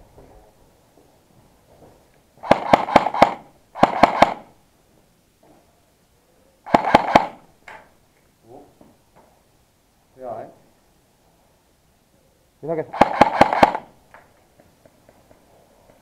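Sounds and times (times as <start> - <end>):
airsoft rifle bursts: 2.4 - 4.5, 6.7 - 7.4, 12.9 - 14.0.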